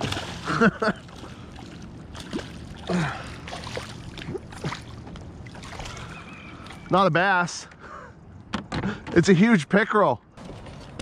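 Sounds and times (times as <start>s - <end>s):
water splashing against kayak: 0.0s - 6.8s.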